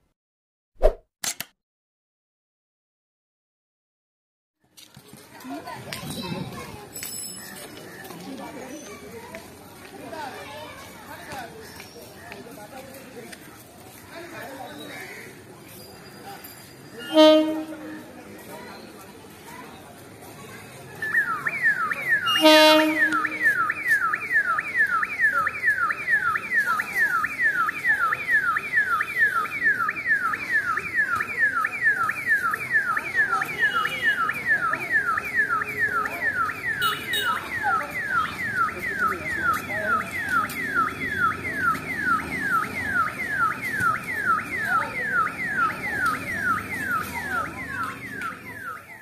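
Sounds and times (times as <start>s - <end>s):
electronic alarm wailing: 21.5s - 49.0s.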